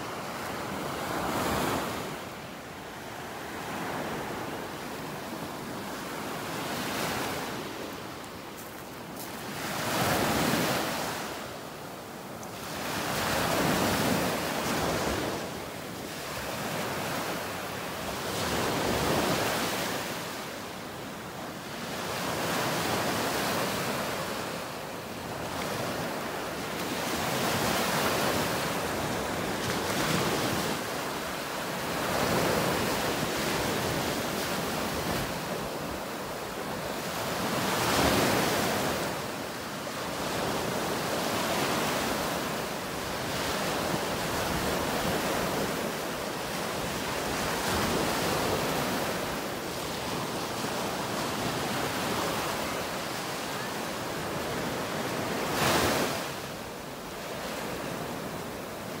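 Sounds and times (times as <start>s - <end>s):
surf washing up beach: 0.0s - 59.0s.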